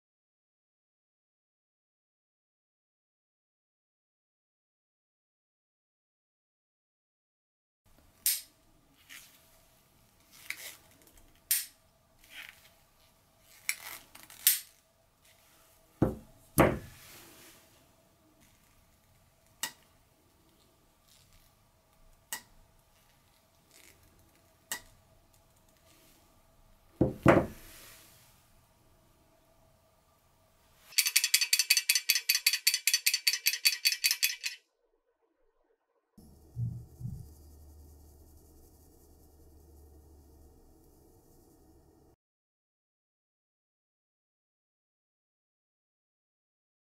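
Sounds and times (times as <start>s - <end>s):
carabiner rattling against metal: 30.9s - 34.6s.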